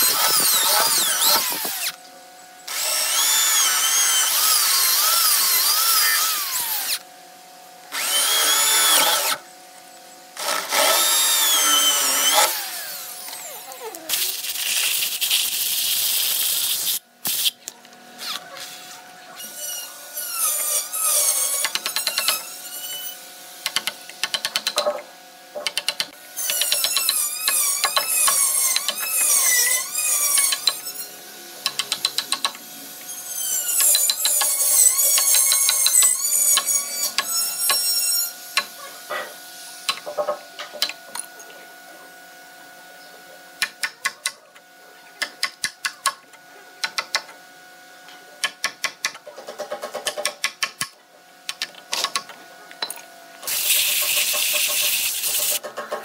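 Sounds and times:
high wavering squeals: 33.1s - 38.4s.

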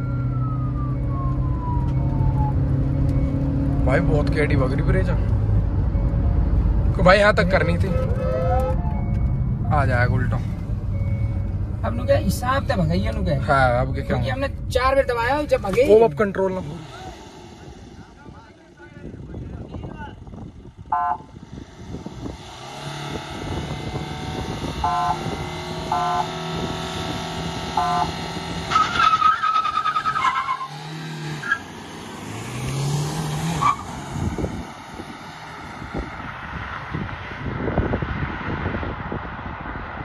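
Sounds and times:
diesel engines at steady revs: 0.0s - 40.0s
car horn toots: 7.7s - 9.2s, 20.9s - 21.3s, 24.7s - 26.4s, 27.7s - 28.9s
engine revving up: 16.1s - 18.8s, 21.4s - 29.0s, 30.6s - 36.8s
tyre squeal: 28.7s - 30.8s, 33.5s - 33.9s.

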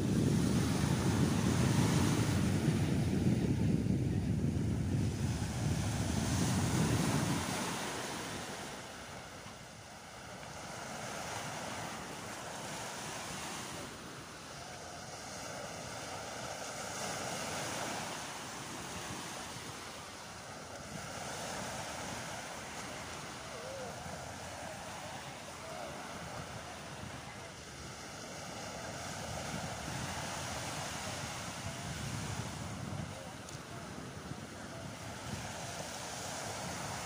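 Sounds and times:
wind buffeting microphone: 0.0s - 8.6s, 20.8s - 37.0s
small waves breaking on beach: 0.0s - 37.0s.

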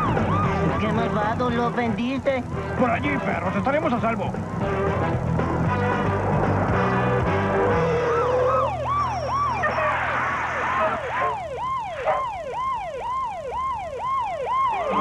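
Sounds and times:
cartoon siren wailing: 0.0s - 1.2s, 7.4s - 15.0s.

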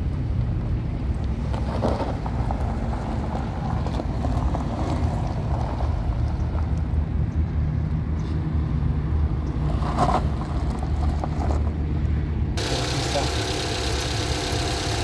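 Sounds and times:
engine idling: 12.6s - 15.0s.

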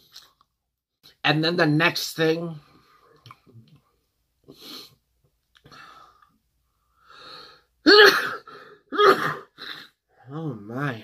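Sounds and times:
man sneezing: 7.8s - 10.0s.

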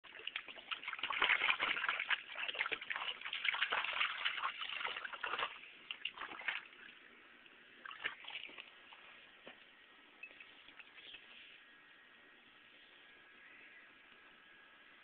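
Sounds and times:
water splashing in a bowl: 0.0s - 7.1s, 7.8s - 8.8s.

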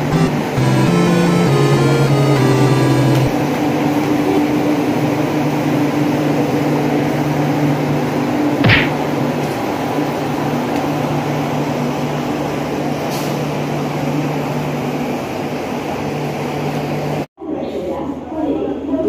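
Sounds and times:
train engine droning: 0.0s - 8.4s.

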